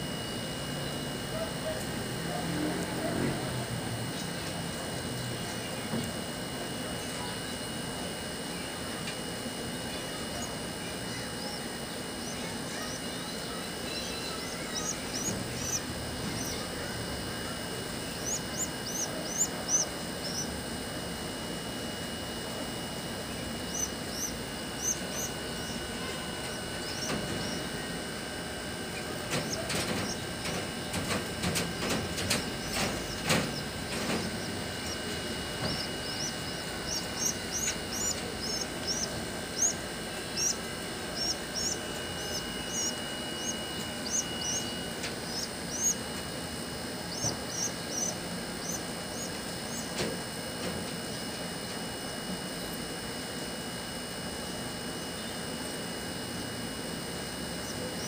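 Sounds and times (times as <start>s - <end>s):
pigeon squabs squeaking: 11.2s - 20.7s, 23.6s - 46.1s, 47.0s - 49.9s.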